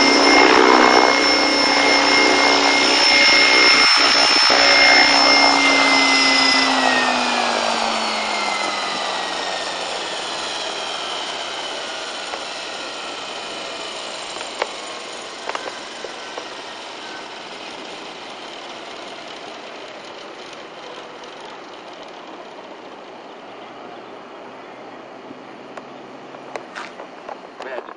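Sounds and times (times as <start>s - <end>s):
electric motor whine spooling down: 0.0s - 26.5s.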